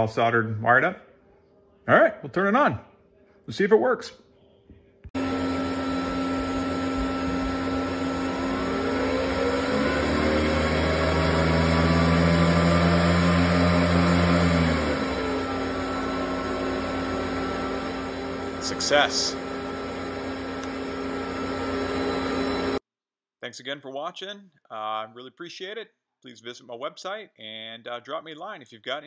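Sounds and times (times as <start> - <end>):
cooling fans whirring: 5.2 - 22.8.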